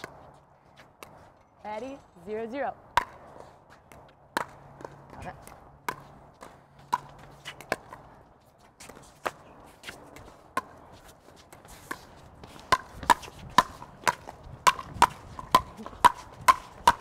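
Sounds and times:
paddles hitting plastic ball: 0:02.9 - 0:03.2, 0:03.9 - 0:08.0, 0:11.5 - 0:17.0.

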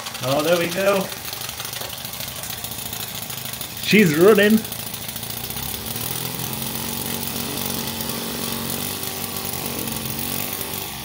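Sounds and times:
miniature steam engine running: 0:00.0 - 0:11.0.

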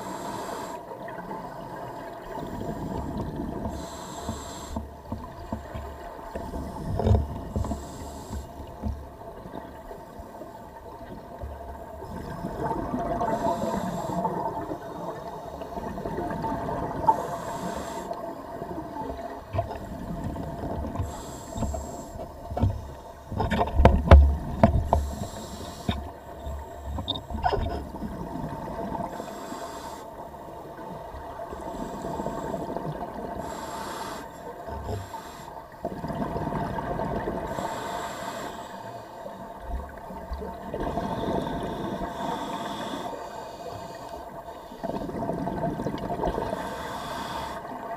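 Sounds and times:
scuba regulator hissing inhalations: 0:00.0 - 0:00.9, 0:03.7 - 0:04.9, 0:07.6 - 0:08.6, 0:13.2 - 0:15.6, 0:17.1 - 0:18.4, 0:21.0 - 0:22.3, 0:24.9 - 0:26.9, 0:29.0 - 0:30.1, 0:33.4 - 0:35.6, 0:37.5 - 0:39.2, 0:40.8 - 0:44.8, 0:46.4 - 0:47.7.

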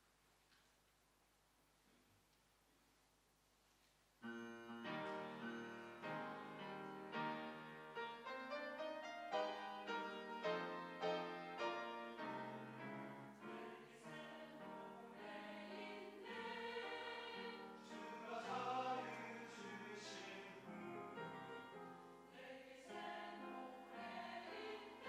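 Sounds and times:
piano accompaniment: 0:04.2 - 0:25.0
mixed choir singing: 0:10.4 - 0:25.0.

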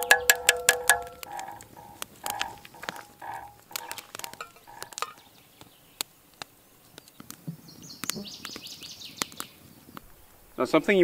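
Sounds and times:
metallic clinks from pot: 0:00.0 - 0:05.2
fire pops: 0:00.0 - 0:10.6
campfire crackling: 0:00.0 - 0:11.0.

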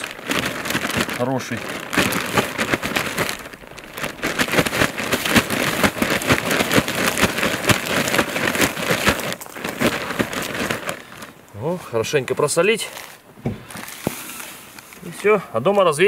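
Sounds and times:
salt grains pattering on fish: 0:00.0 - 0:11.1.

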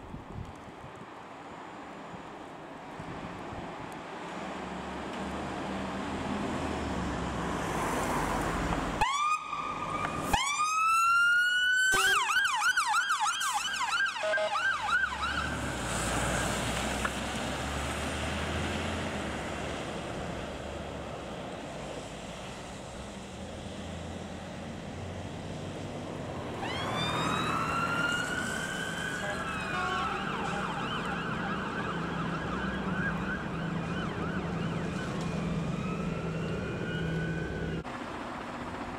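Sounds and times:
engine and road rumble: 0:00.0 - 0:38.9
fire engine siren: 0:07.8 - 0:20.0, 0:26.2 - 0:38.9.

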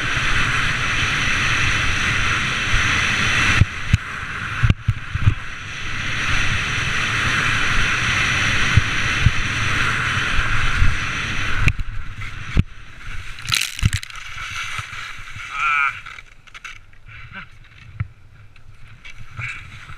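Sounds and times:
skis scraping over snow: 0:13.0 - 0:16.4.

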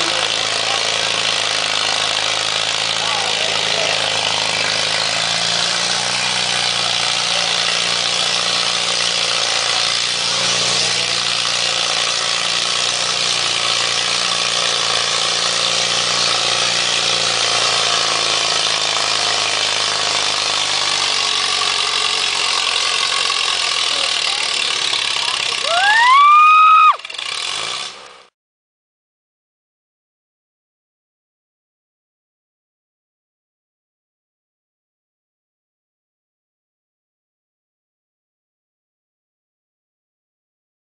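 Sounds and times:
tractor engine running under load: 0:00.0 - 0:28.3.

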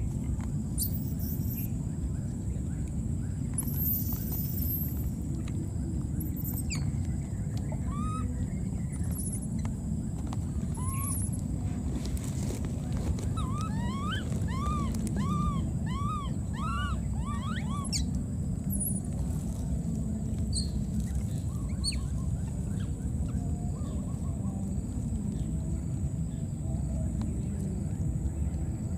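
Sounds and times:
low rumble: 0:00.0 - 0:28.9
animal chirping: 0:07.8 - 0:08.3, 0:10.7 - 0:11.4, 0:13.3 - 0:18.1.

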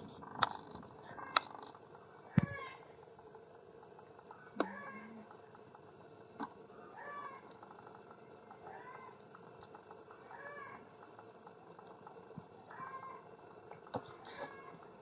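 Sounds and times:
baby monkey calling: 0:06.9 - 0:07.4, 0:12.7 - 0:13.3.

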